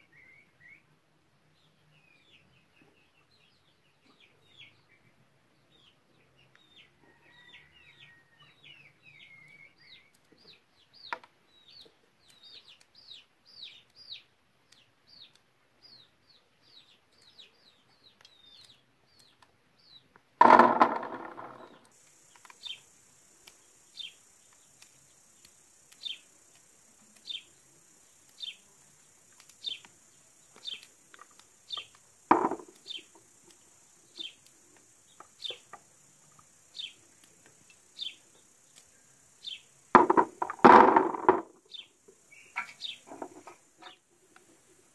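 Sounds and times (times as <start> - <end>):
small bird chirping: 1.6 - 20.2, 20.8 - 44.9
rooster crowing: 7.0 - 8.6
high insect buzz: 20.4 - 44.9.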